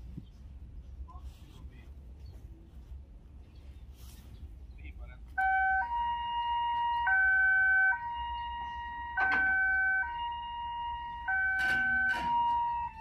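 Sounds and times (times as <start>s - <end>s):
two-tone level crossing siren: 5.4s - 13.0s.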